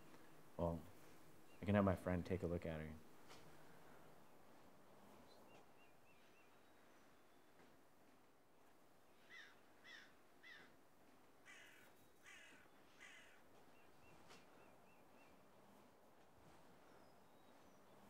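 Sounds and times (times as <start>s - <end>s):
crow cawing: 9.3s - 10.7s, 11.4s - 13.4s
small bird twittering: 9.3s - 10.7s.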